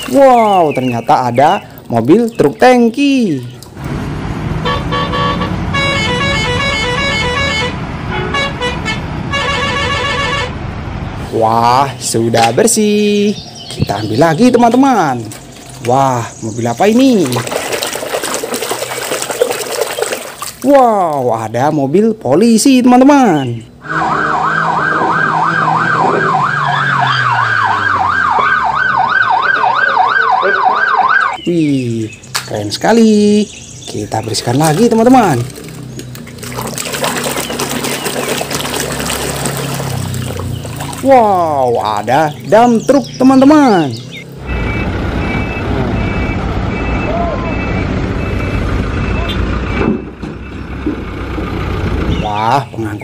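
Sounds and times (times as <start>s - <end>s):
truck horn tooting: 4.6s - 10.6s, 23.8s - 28.6s
police siren warbling: 23.8s - 31.4s, 43.7s - 49.5s
truck engine running: 35.1s - 52.4s.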